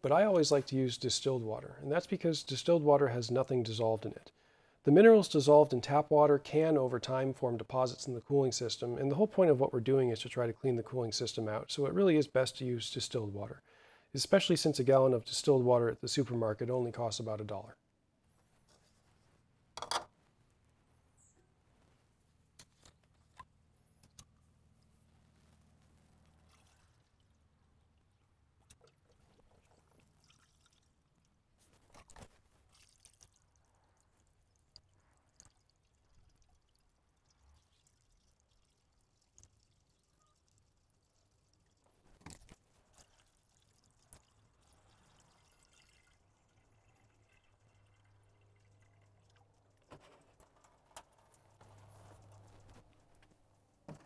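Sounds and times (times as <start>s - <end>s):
water pouring through a funnel: 0.0s - 4.2s, 4.9s - 13.5s, 26.3s - 53.9s
handling clicks and knocks: 49.8s - 54.0s.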